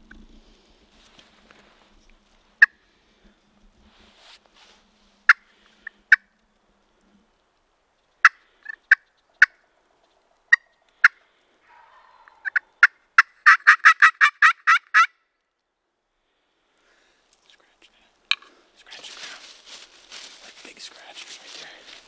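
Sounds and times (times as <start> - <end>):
turkey clucking: 8.2 - 15.1
turkey yelping: 10.5 - 15.1.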